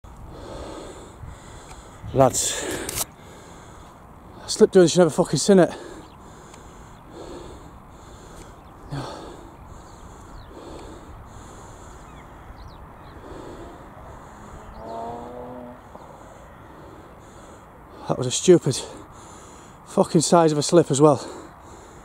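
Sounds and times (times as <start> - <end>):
wind on microphone: 0.1 - 3.0, 12.2 - 16.1
man breathing hard: 0.1 - 4.4, 5.7 - 14.9, 15.8 - 18.2, 18.8 - 19.9, 21.1 - 22.0
man gasping: 5.7 - 12.1, 13.2 - 14.7.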